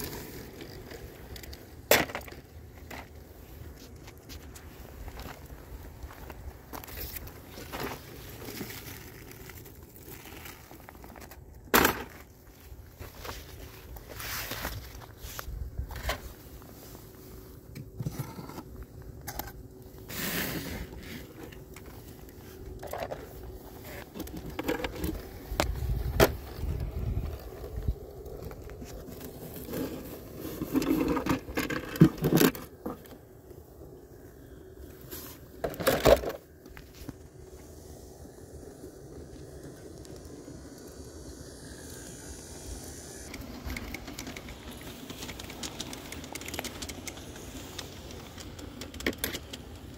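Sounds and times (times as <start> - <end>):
small objects scraping and clicking: 17.7 - 33.2, 39.6 - 49.9.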